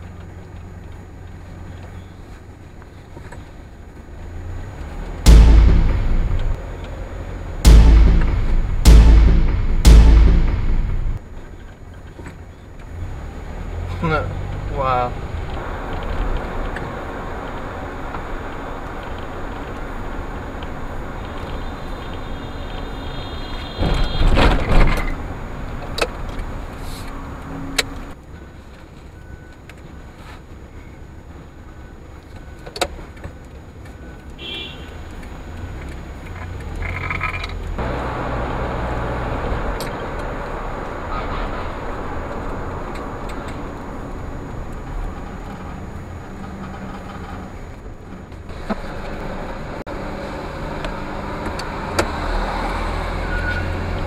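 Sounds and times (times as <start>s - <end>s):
road and engine noise: 0.0s - 54.0s
loud burst: 5.3s - 6.6s, 7.6s - 11.2s
car horn: 21.5s - 24.5s, 34.4s - 35.0s.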